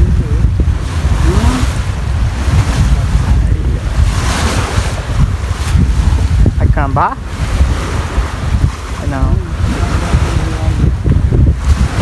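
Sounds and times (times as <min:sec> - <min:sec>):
choppy waves splashing: 0:00.0 - 0:12.0
wind buffeting microphone: 0:00.0 - 0:12.0.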